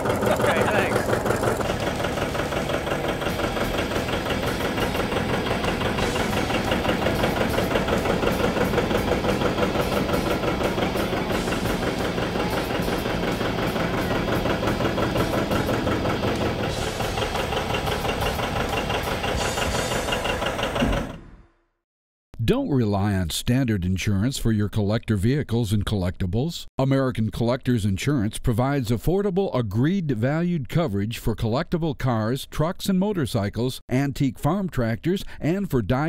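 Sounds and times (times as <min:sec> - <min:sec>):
diesel engine running: 0:00.0 - 0:21.4.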